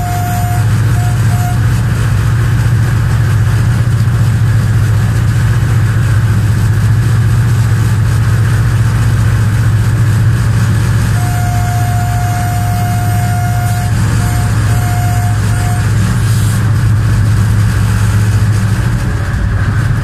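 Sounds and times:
high steady tone: 0.0 - 1.7, 11.2 - 16.1
locomotive engine drone: 0.0 - 20.0
rushing of wheels and air: 0.0 - 20.0.

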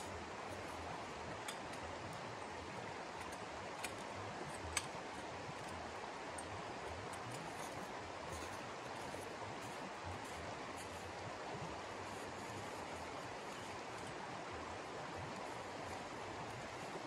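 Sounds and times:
tent pole clicks: 0.5 - 11.2.

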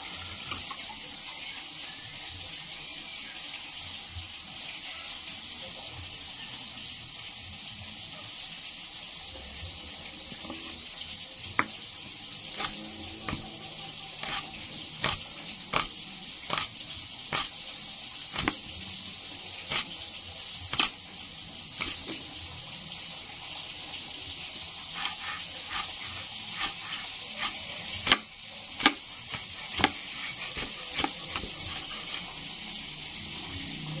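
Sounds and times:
oil sizzling: 0.0 - 34.0
knife chopping on cutting board: 11.5 - 11.8, 12.6 - 13.6, 14.2 - 17.5, 18.4 - 18.7, 25.0 - 32.2.

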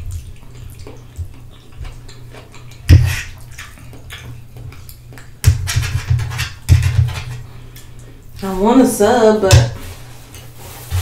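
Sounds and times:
wet chewing and slurping: 0.0 - 8.4.

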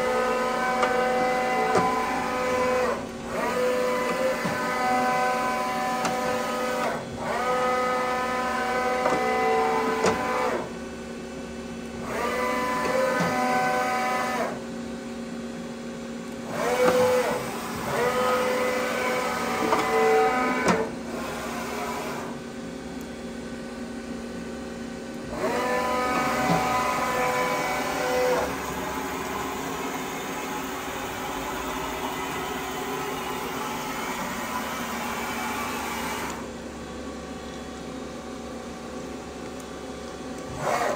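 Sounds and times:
servo motor whine: 0.0 - 10.7, 12.0 - 14.6, 16.4 - 22.4, 25.2 - 36.6, 40.4 - 40.9
steady machine hum: 0.0 - 40.9.

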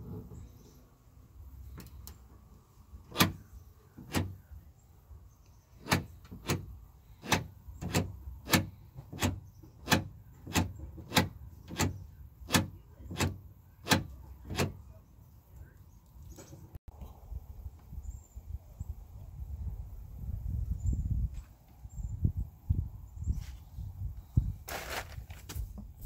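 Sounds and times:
door lock actuator clicking: 4.0 - 4.4.

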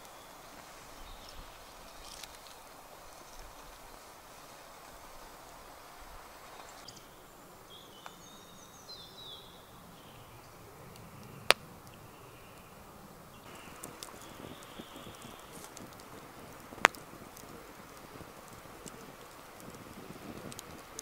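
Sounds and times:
wood fire crack: 0.0 - 7.0, 10.0 - 21.0
bird chirping: 6.4 - 21.0.

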